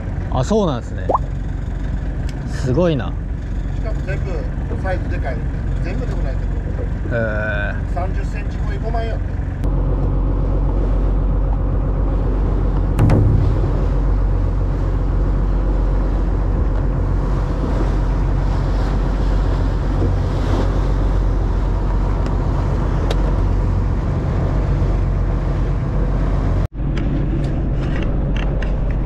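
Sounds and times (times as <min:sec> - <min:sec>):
boat engine running: 0:00.0 - 0:29.0
wind: 0:00.0 - 0:29.0
water noise: 0:01.0 - 0:02.3, 0:03.2 - 0:29.0.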